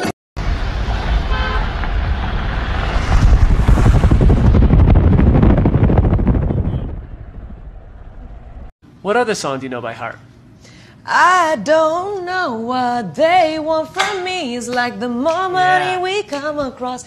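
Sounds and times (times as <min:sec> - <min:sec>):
car road rumble: 0:00.4 - 0:08.7
wind buffeting: 0:00.4 - 0:08.7.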